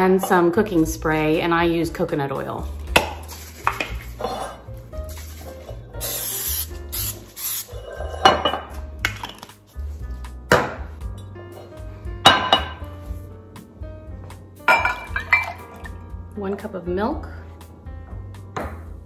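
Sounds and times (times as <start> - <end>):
aerosol spray hissing: 6.0 - 7.7
kitchenware clinking on stone: 8.0 - 9.4, 12.3 - 12.8, 14.7 - 15.8.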